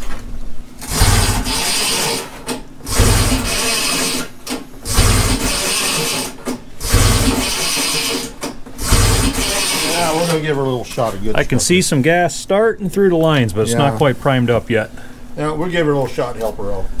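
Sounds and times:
engine pull-starter cord whirring: 0.8s - 10.1s.

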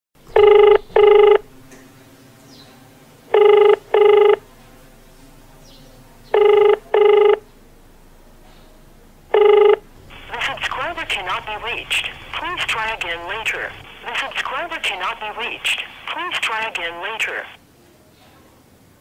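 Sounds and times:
telephone ringback tone: 0.3s - 1.5s, 3.3s - 4.4s, 6.4s - 7.4s, 9.3s - 13.0s.

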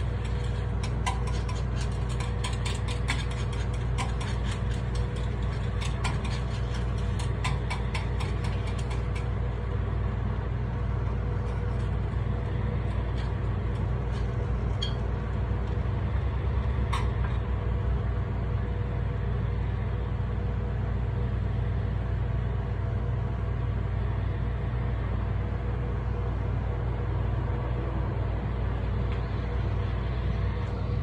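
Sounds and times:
metal picks tapping griddle: 0.0s - 9.7s, 11.4s - 15.8s
exhaust hood drone: 0.0s - 31.0s.

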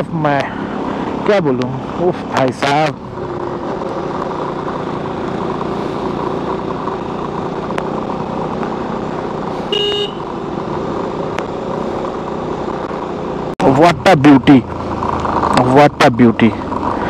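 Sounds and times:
motorcycle engine and road noise: 0.0s - 17.0s
vehicle horn beep: 9.7s - 10.3s.

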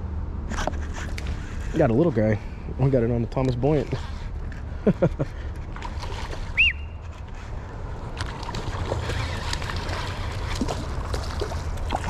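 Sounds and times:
high whistle: 6.6s - 7.0s.

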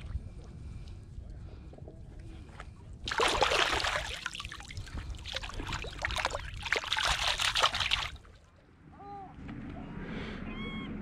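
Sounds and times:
water splashing and sloshing: 0.0s - 1.0s, 2.3s - 8.5s.

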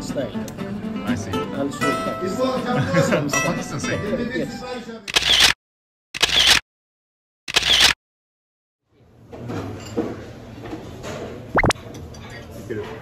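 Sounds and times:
dining room background noise: 8.9s - 13.0s.

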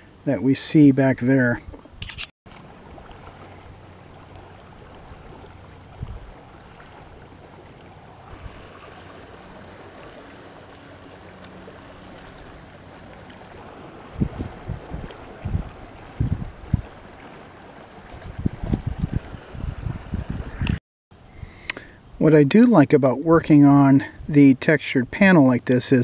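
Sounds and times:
water lapping around kayak: 0.0s - 25.8s
wind: 0.0s - 26.0s.

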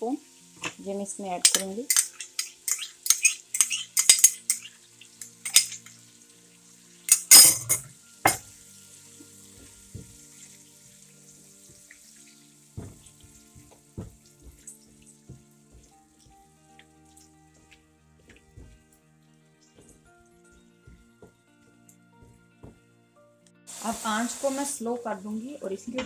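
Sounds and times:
yogurt sizzling in hot oil: 0.0s - 22.8s, 23.7s - 26.0s
spatula scraping and tapping pan: 1.5s - 5.9s, 17.6s - 18.8s.

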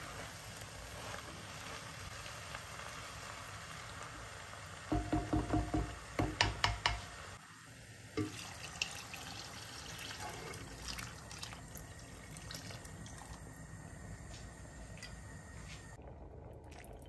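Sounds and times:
water pouring into pot: 7.7s - 13.7s, 16.0s - 17.0s.

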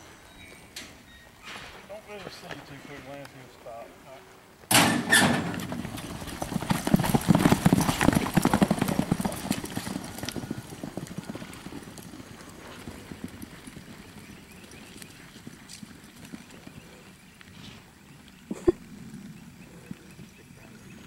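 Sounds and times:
horse hoofbeats on dirt: 5.1s - 21.0s.

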